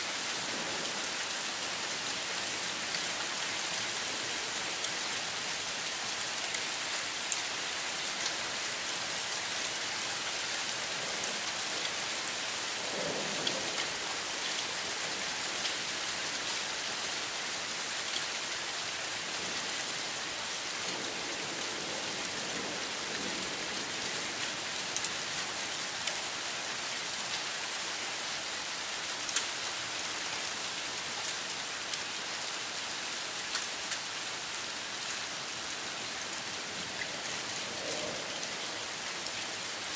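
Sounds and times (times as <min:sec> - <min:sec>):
heavy rain pouring: 0:00.0 - 0:39.9
faint thunder rumbles: 0:12.5 - 0:14.7, 0:36.6 - 0:39.0.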